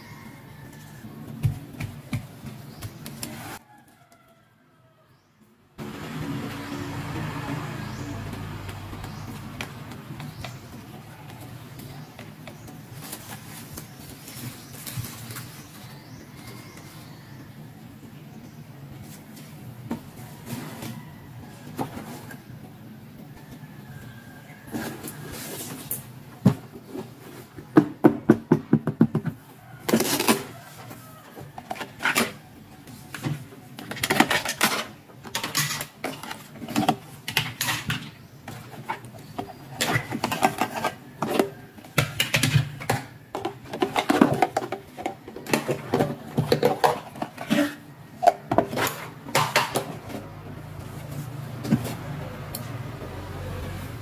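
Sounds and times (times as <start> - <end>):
rustling: 8.7 - 17.0.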